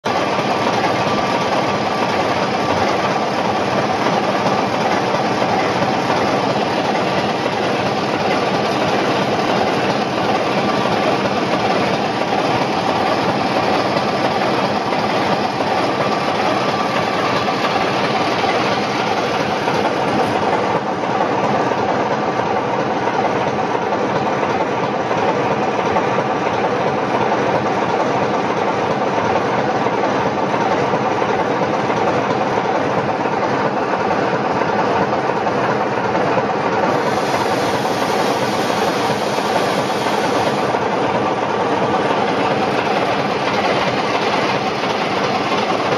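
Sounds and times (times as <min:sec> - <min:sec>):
locomotive diesel engine idling: 0:00.1 - 0:24.0.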